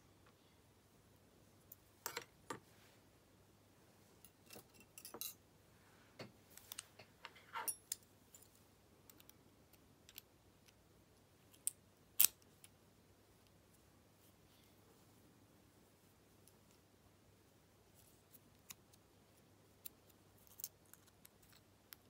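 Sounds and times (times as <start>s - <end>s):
small metallic clicks of lock parts: 9.1s - 10.8s.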